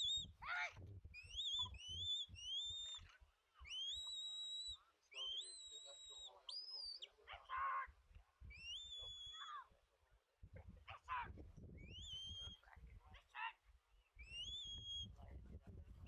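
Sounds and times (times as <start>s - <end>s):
high sliding whistles: 3.7s - 7.0s.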